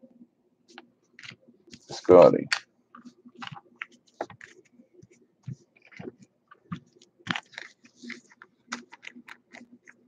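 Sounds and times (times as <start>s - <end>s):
cards flipped by hand: 5.5s - 10.0s.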